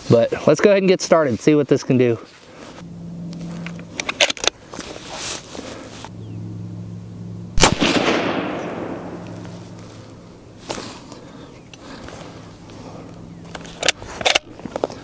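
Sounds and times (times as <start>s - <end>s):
suppressed rifle shot with echo: 7.6s - 9.8s.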